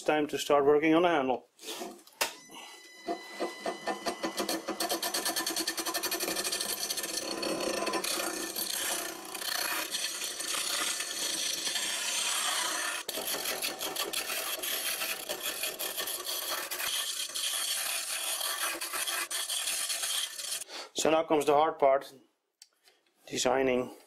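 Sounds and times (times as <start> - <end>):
wood lathe scraping hiss: 4.4 - 20.6.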